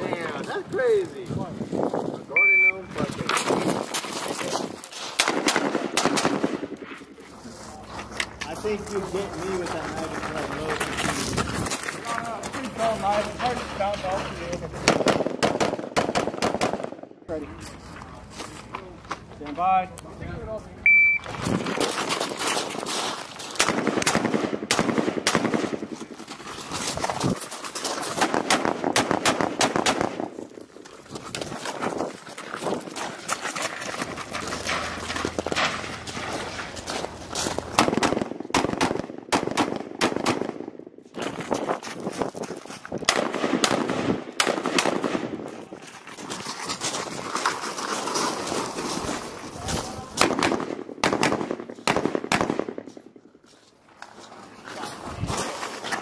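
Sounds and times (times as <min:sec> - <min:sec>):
running footsteps on gravel: 0:00.0 - 0:05.2, 0:07.2 - 0:15.0, 0:17.3 - 0:24.0, 0:25.6 - 0:29.0, 0:30.2 - 0:38.2, 0:41.1 - 0:43.1, 0:45.3 - 0:50.3, 0:52.8 - 0:56.0
rifle shots: 0:05.2 - 0:07.0, 0:14.8 - 0:17.1, 0:23.6 - 0:26.0, 0:28.1 - 0:30.4, 0:37.7 - 0:40.8, 0:43.1 - 0:45.4, 0:50.2 - 0:52.9.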